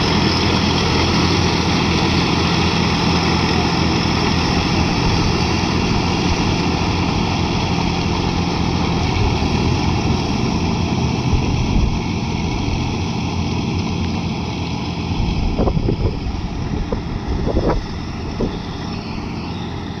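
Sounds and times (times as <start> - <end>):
tractor diesel engine running: 0.0 - 20.0
wind buffeting microphone: 9.1 - 13.0, 15.1 - 19.4.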